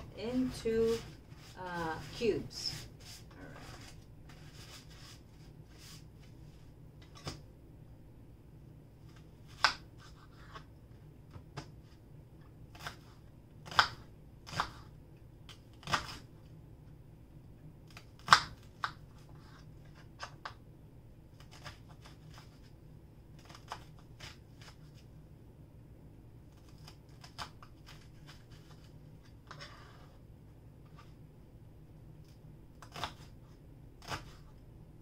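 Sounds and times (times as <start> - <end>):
knife cutting onion on board: 12.7 - 14.9, 15.8 - 16.3, 17.9 - 20.5, 32.8 - 33.4, 34.0 - 34.6.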